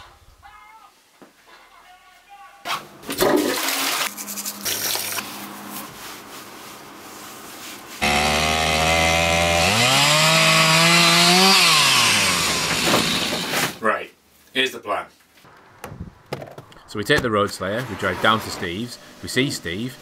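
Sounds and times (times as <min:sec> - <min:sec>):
rustling noise: 0:04.1 - 0:08.0
chainsaw engine revving: 0:08.0 - 0:13.7.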